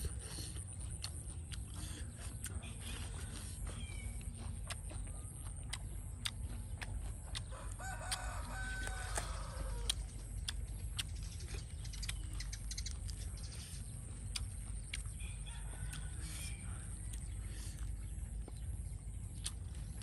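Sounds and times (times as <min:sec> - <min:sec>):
rooster crowing: 0:07.4 - 0:10.0, 0:15.2 - 0:16.8.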